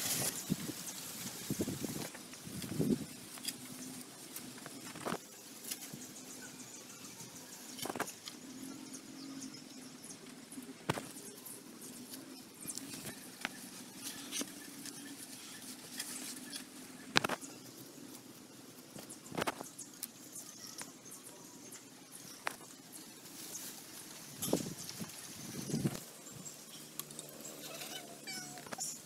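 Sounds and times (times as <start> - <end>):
sharp crinkle of sack: 0.0 - 5.8.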